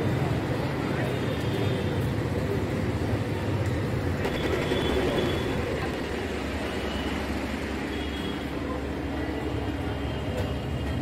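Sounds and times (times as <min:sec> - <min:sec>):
city street rumble: 0:00.0 - 0:11.0.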